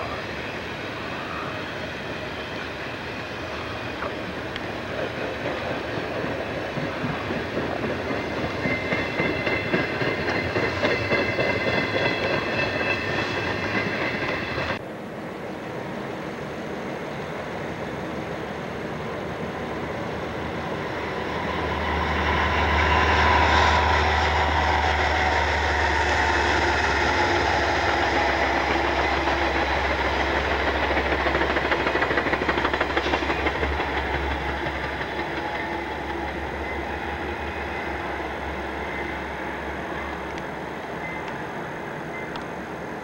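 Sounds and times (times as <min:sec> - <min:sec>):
diesel locomotive engine rumble: 0:00.0 - 0:43.0
train cars rushing by: 0:00.0 - 0:43.0.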